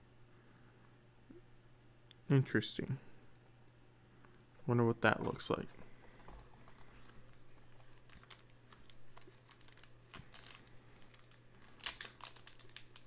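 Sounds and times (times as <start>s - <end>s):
steady low hum: 0.0s - 13.0s
wrapper crinkling and tearing: 6.4s - 13.0s.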